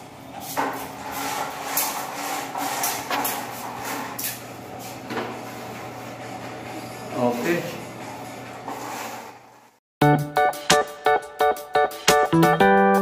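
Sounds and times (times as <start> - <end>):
window screen scraping and rattling: 0.5 - 6.6, 8.1 - 9.8.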